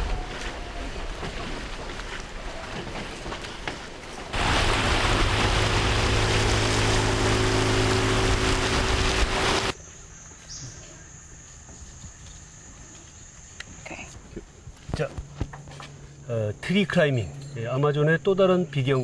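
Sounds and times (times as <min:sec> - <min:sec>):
rushing wind and water: 0:03.9 - 0:09.8
outboard engine running: 0:04.3 - 0:09.8.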